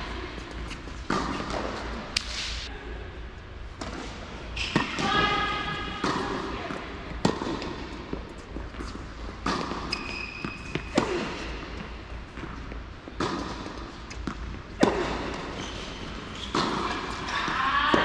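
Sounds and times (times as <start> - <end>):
tennis ball hits and bounces: 0.6 - 2.6, 6.0 - 17.4.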